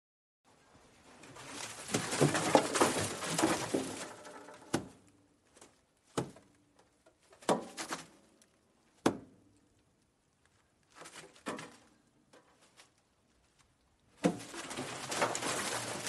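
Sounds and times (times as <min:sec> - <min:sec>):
rustling and scratching: 0:00.7 - 0:04.8, 0:10.4 - 0:16.0.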